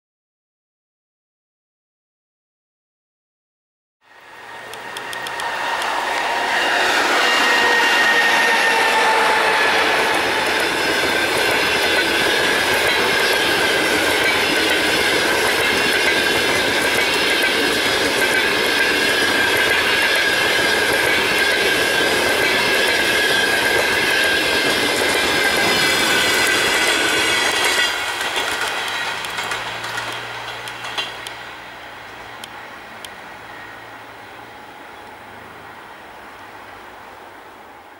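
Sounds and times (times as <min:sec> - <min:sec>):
high ringing tone: 0:04.0 - 0:14.6, 0:32.5 - 0:35.0
train wheels rushing on rails: 0:04.1 - 0:36.8.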